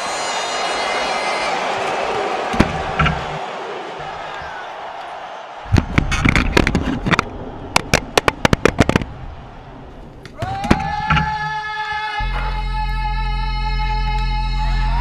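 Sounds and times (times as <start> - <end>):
sharp clicks and knocks: 2.5 - 3.4, 5.7 - 9.1
deep bass: 12.2 - 15.0.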